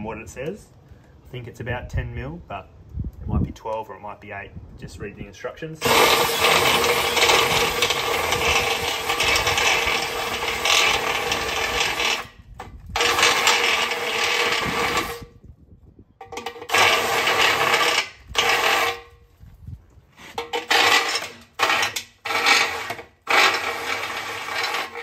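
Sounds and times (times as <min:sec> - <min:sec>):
cordless drill boring metal: 0:05.8 - 0:15.3, 0:16.4 - 0:19.1, 0:20.4 - 0:25.0.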